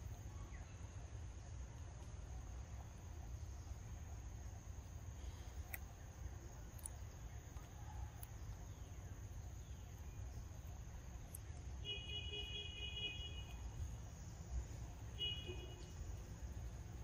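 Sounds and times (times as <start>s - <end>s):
faint ticks: 5.4s - 8.7s.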